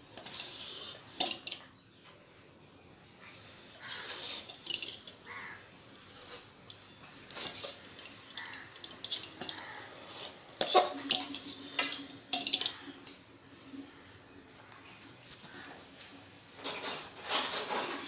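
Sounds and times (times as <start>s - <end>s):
metal spatula scraping a metal pan: 0.1s - 1.6s, 3.8s - 13.2s.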